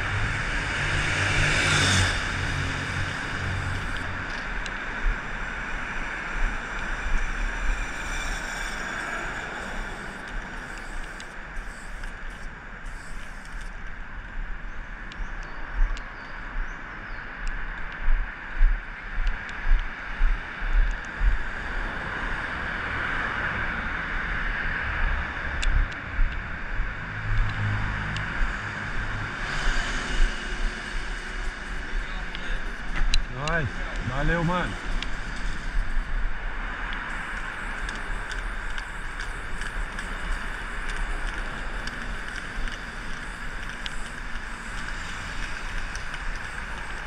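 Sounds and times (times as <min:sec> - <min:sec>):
cars passing: 0:00.0 - 0:47.0
road traffic rumble: 0:00.0 - 0:47.0
spray paint can hissing: 0:01.1 - 0:04.1, 0:06.7 - 0:13.9, 0:29.4 - 0:47.0.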